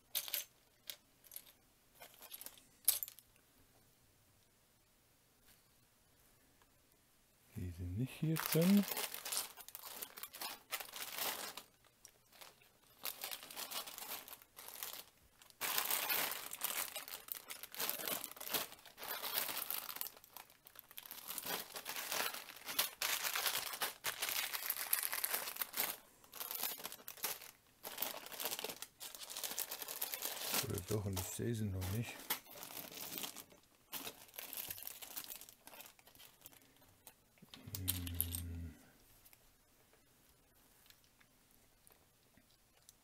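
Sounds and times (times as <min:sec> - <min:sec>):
plastic bags crinkling: 0:01.3 - 0:03.2, 0:07.6 - 0:38.5
plastic brick pieces rummaged: 0:12.3 - 0:36.5.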